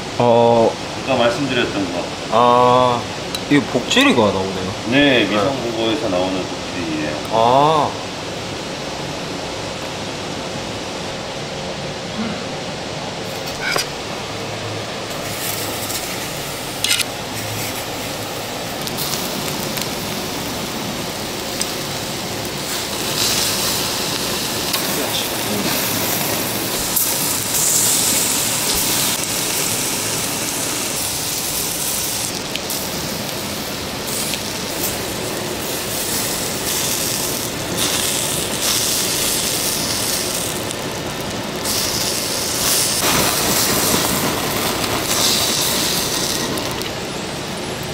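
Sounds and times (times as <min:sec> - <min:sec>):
dripping fat hissing: 0:00.0 - 0:47.9
meat sizzling on a grill: 0:00.2 - 0:08.0, 0:14.9 - 0:47.9.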